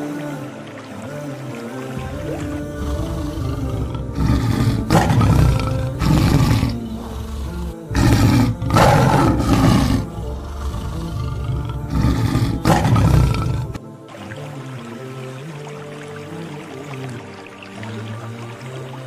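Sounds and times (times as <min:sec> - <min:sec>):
background music: 0:00.0 - 0:19.0
tiger roaring: 0:02.1 - 0:13.8.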